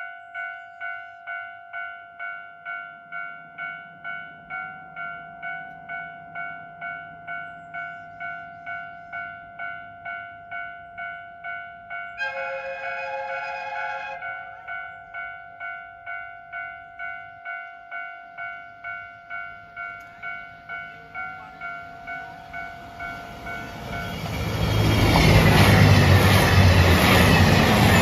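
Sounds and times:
level crossing warning bell: 0.0s - 28.0s
diesel train rumbling past: 19.6s - 28.0s.

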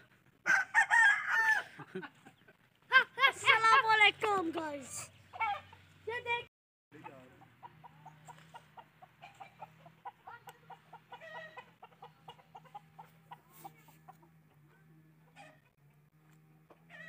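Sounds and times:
rooster clucking softly: 7.0s - 14.6s.

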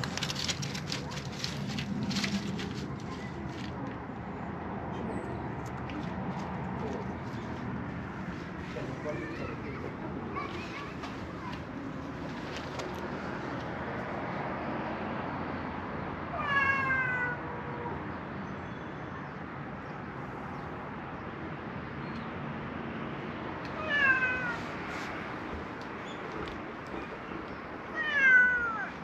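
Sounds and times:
cat meowing: 16.4s - 17.4s, 23.8s - 24.6s, 27.9s - 28.9s.

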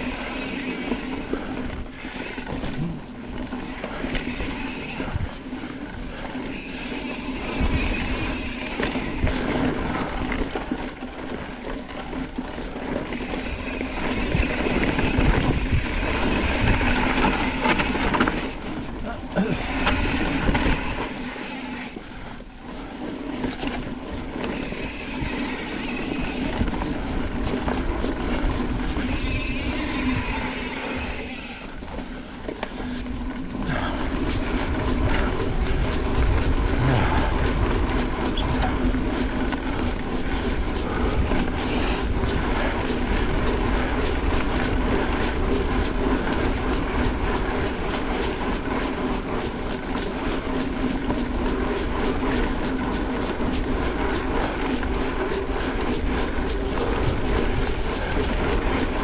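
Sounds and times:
bicycle tyres rolling on dirt: 0.0s - 59.0s
bike rattling and clicking: 0.0s - 59.0s
wind on microphone: 7.1s - 9.8s, 13.2s - 21.2s, 32.8s - 59.0s.

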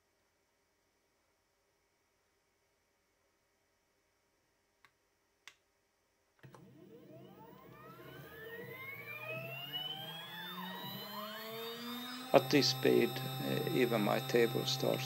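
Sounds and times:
stepper motor whine rising: 6.5s - 15.0s.

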